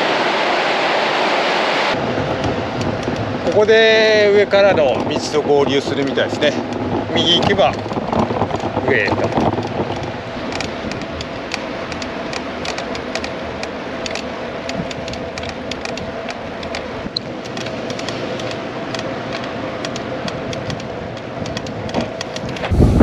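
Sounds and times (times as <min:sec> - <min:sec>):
bicycle rolling on road: 0:01.9 - 0:23.0
light irregular ticks: 0:04.8 - 0:22.7.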